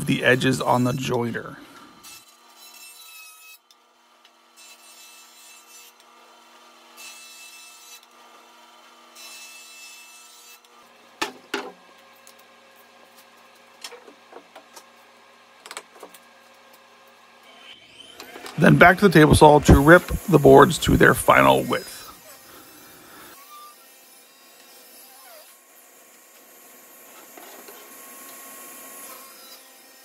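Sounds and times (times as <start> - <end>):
hiss of wood cutting: 17.8 - 23.8
jointer humming: 18.2 - 22.1.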